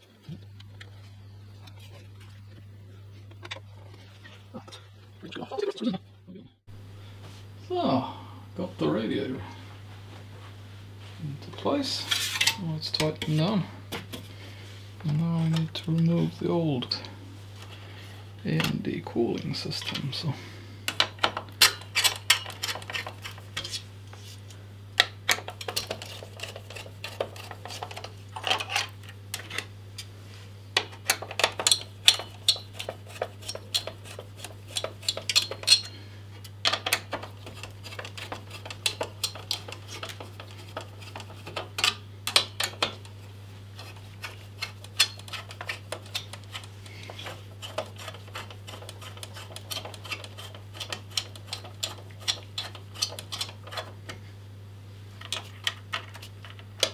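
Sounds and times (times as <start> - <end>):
steady low hum: 0.0 - 56.9
screwdriver clicks and scrapes: 31.0 - 43.1, 43.8 - 54.0.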